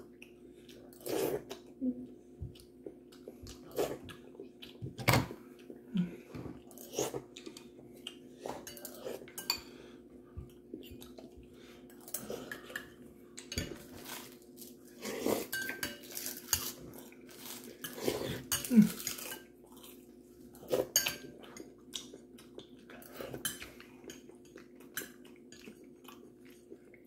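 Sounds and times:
metal spoon clinking ceramic bowl: 0:15.5 - 0:16.7.

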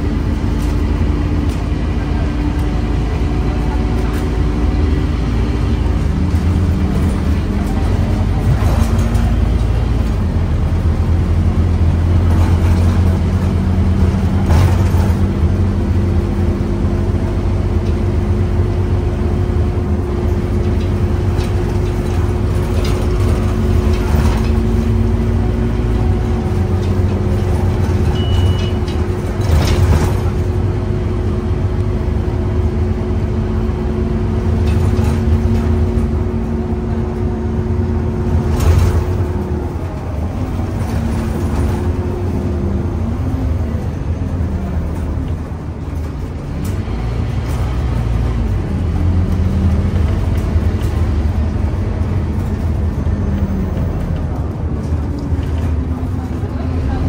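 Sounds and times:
bus engine rumbling: 0:00.0 - 0:57.0
high beep: 0:28.2 - 0:28.8.

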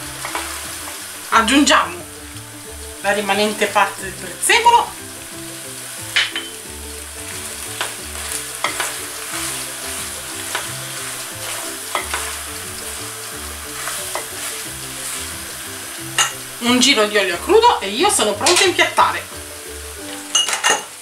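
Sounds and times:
sauce sizzling in a frying pan: 0:00.0 - 0:21.0
spatula scraping and knocking pan: 0:07.2 - 0:16.6.

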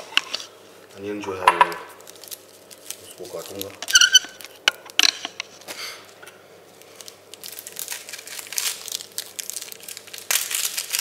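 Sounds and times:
onion skin crackling and tearing: 0:01.9 - 0:05.0, 0:06.8 - 0:11.0.

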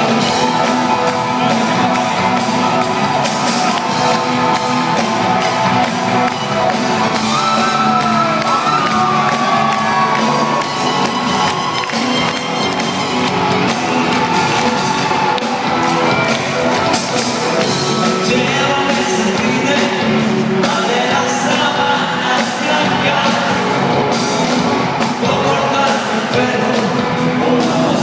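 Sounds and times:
crowd whooping and shouting: 0:00.0 - 0:19.0
live rock band playing: 0:00.0 - 0:28.0.

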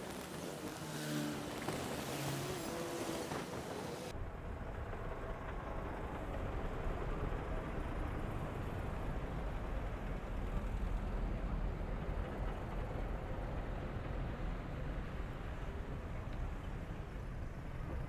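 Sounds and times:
wind and road noise rumble: 0:00.0 - 0:18.0.

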